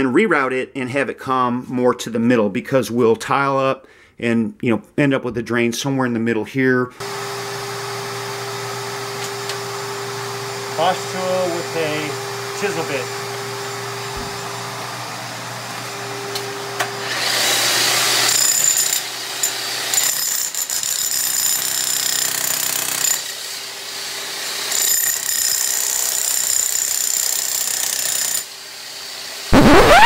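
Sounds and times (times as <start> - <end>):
demolition hammer chipping concrete: 17.1 - 23.4, 24.5 - 28.5.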